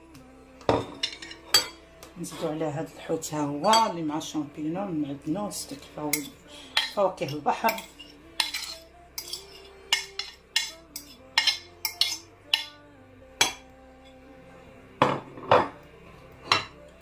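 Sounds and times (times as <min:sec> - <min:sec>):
fork scraping on ceramic plate: 0:06.1 - 0:12.7.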